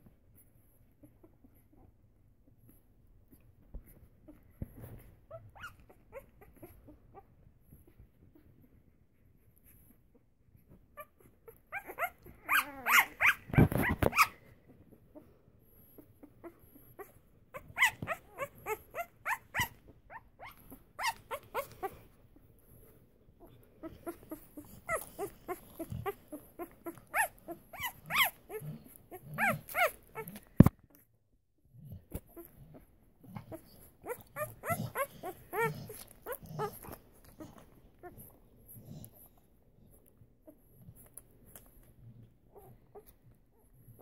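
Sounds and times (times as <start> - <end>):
puppies squeaking and whimpering: 0.8 - 2.0, 3.9 - 8.6, 9.6 - 22.4, 23.4 - 31.0, 32.1 - 39.3.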